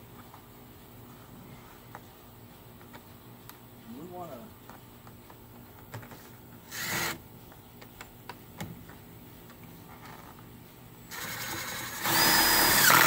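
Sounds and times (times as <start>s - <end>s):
cordless drill driving a screw: 6.7s - 7.2s, 11.1s - 13.0s.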